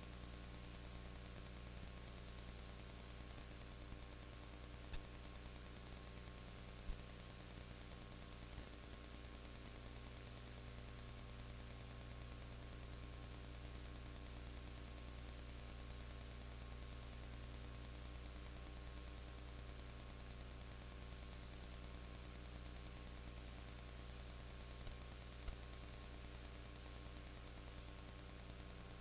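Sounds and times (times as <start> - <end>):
electrical hum: 0.0 - 29.0
tape hiss: 0.0 - 29.0
faint click: 4.9 - 5.2.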